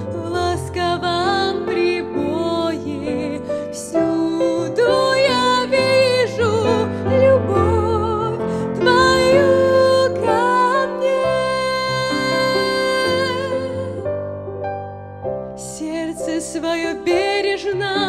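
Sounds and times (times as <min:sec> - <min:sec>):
woman singing slow song: 0:00.0 - 0:14.0, 0:15.6 - 0:18.0.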